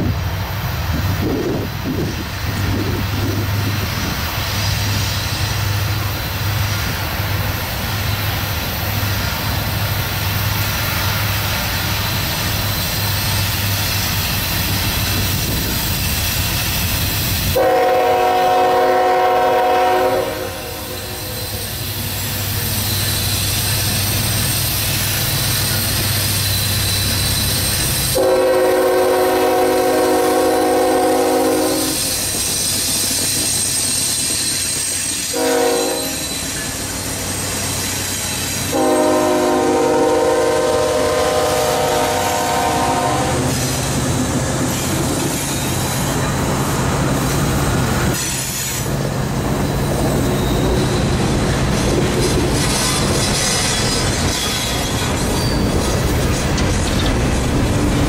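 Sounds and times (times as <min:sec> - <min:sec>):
locomotive air horn blasts: 0:17.6 - 0:21.6, 0:28.1 - 0:32.2, 0:35.3 - 0:36.6, 0:38.7 - 0:43.6
locomotive engine rumble: 0:35.3 - 0:58.0.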